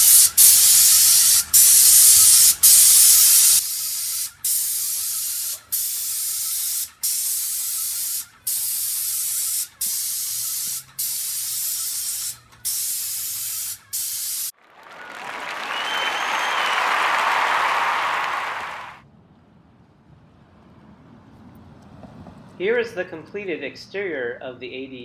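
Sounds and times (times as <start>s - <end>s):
paint spray gun hissing: 0.0s - 14.5s.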